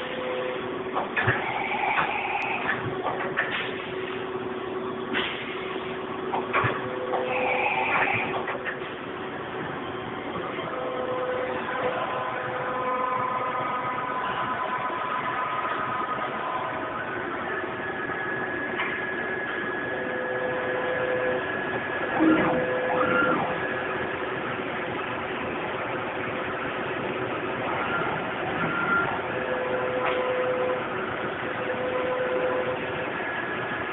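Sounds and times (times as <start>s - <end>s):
machine mechanical hum: 0.0s - 33.9s
machine whines: 0.0s - 33.9s.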